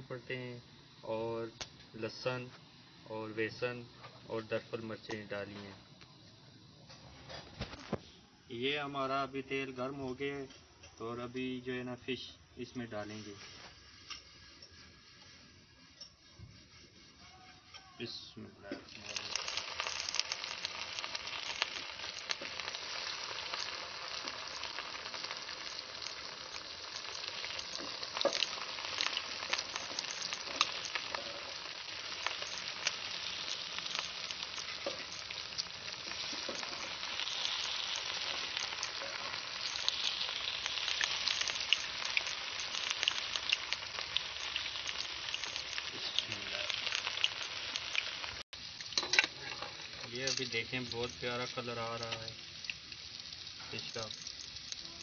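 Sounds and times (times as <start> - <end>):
fish deep-frying in oil: 11.6 - 55.0.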